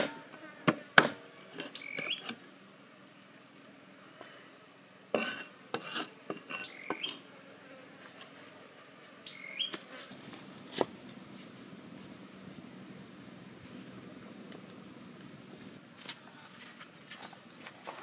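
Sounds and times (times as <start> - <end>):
cleaver chopping on wooden board: 0.0 - 1.2.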